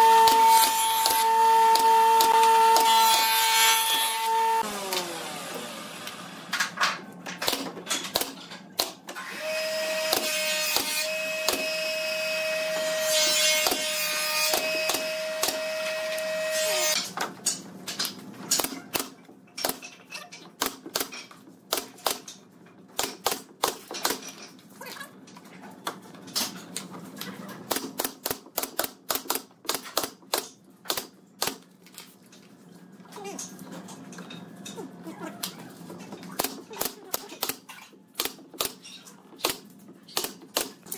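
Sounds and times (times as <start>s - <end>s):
nail gun firing: 0.2s - 3.3s, 7.4s - 9.0s, 10.0s - 11.9s, 14.5s - 15.8s, 27.7s - 31.6s.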